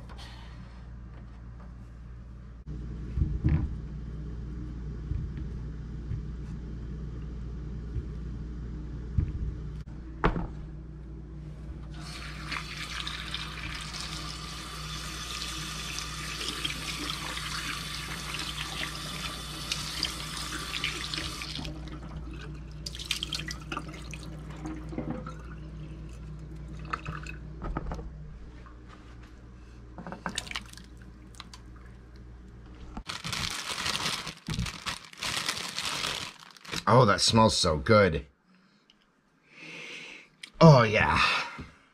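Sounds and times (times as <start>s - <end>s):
low steady hum: 0.0s - 39.4s
faucet running into bowl: 12.0s - 27.4s.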